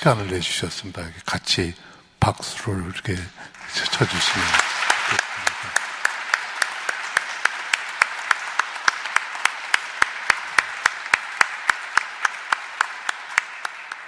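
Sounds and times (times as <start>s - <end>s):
congregation applauding: 3.4s - 14.0s
nearby hands clapping loudly: 3.6s - 14.0s.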